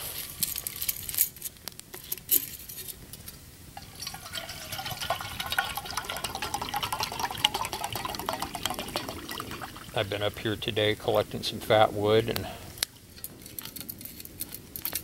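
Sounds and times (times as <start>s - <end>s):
water pouring into metal cup: 3.8s - 10.5s.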